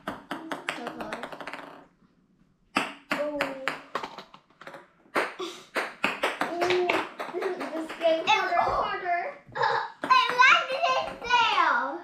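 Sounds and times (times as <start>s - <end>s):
ping pong ball bouncing on table: 0.0s - 1.8s, 2.7s - 8.1s.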